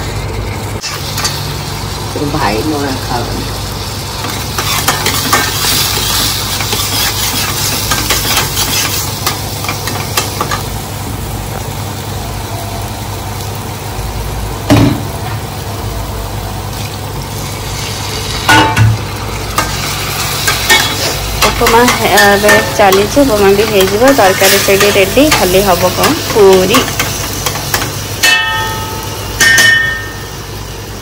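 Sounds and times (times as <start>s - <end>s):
steady sizzle: 0.0s - 31.0s
spatula scraping metal pan: 4.6s - 9.0s
loud metal knock: 14.7s - 15.0s, 18.5s - 19.0s, 28.2s - 30.2s.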